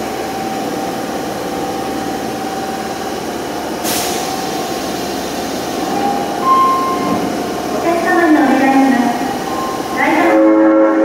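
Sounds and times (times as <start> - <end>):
subway train equipment humming: 0.0 - 11.0
short hiss of released air: 3.8 - 4.3.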